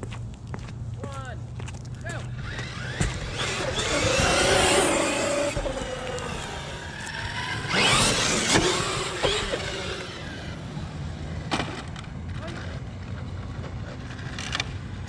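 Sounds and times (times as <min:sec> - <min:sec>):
tyre noise on asphalt: 0:00.0 - 0:15.0
electric motors whining: 0:02.3 - 0:11.5.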